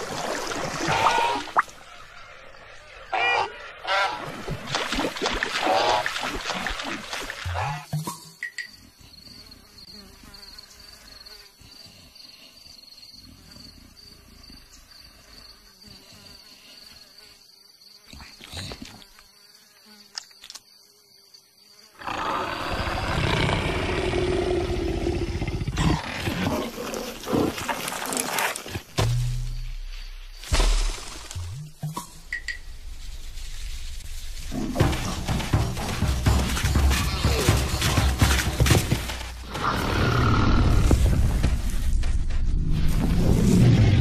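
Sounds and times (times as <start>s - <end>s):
faint insect buzzing: 8.7s - 22.4s
cartoon leopard growling: 22.0s - 27.6s.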